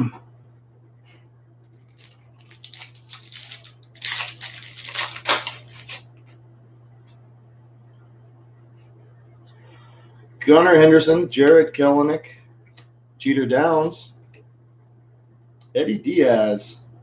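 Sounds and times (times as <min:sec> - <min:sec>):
foil wrapper crinkling and tearing: 0:01.8 - 0:06.1.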